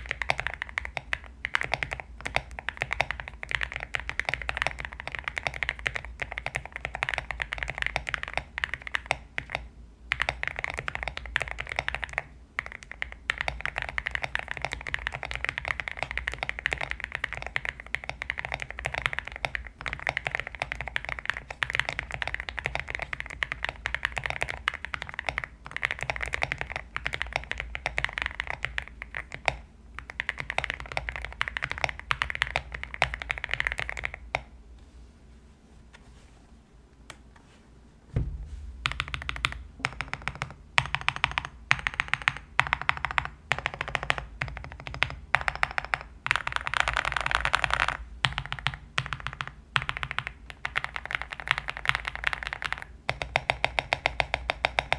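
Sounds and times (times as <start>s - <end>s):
mechanical keyboard typing: 0.0s - 34.4s, 38.8s - 54.9s.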